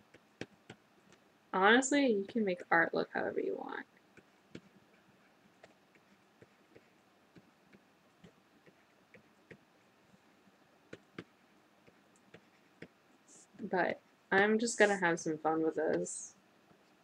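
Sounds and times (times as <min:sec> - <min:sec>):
stylus tapping on drawing tablet: 0:00.1 - 0:01.2, 0:04.1 - 0:09.7, 0:10.9 - 0:13.0, 0:15.9 - 0:16.1.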